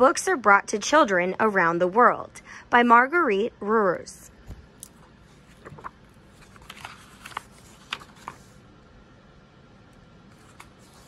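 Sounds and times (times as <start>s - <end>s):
book pages turning: 4.8s - 8.6s, 10.3s - 11.0s.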